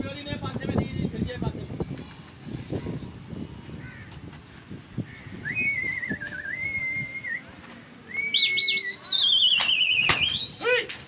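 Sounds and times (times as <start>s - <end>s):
shrill human whistling: 5.4s - 7.5s, 8.1s - 10.7s
sharp cracks: 9.3s - 11.0s.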